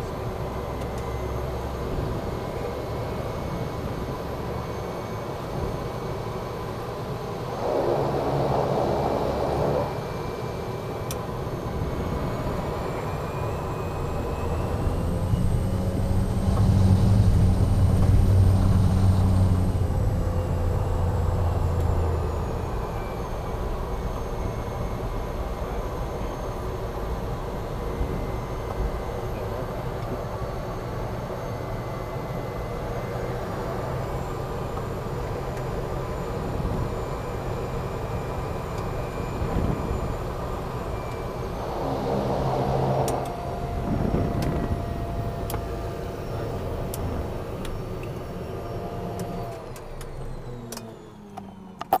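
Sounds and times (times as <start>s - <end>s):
propeller hum: 0.0s - 51.9s
turboprop engine drone: 0.0s - 52.0s.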